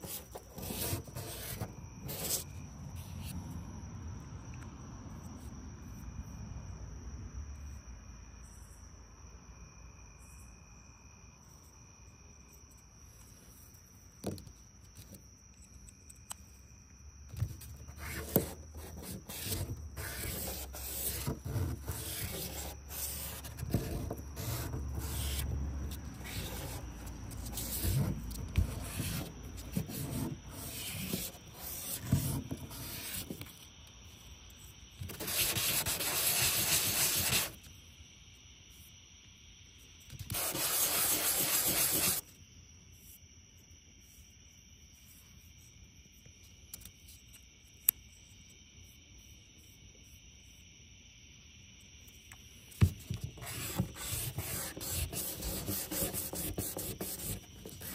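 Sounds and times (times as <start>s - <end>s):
metal scraping on sandpaper: 17.9s - 33.4s, 35.1s - 37.6s, 40.3s - 42.2s, 53.2s - 57.9s.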